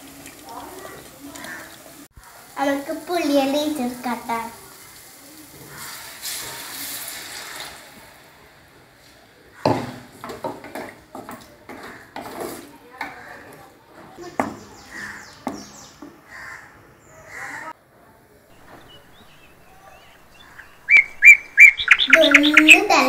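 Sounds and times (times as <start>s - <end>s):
liquid pouring with hissing splash: 0.0s - 9.0s.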